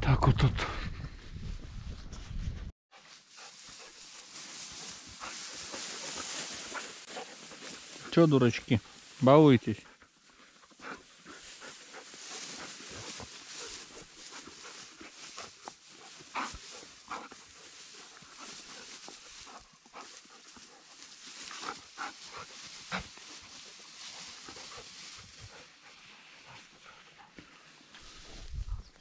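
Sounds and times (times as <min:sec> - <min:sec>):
grass rustling: 0:02.9 - 0:29.0
dogs play-fighting: 0:10.5 - 0:27.4.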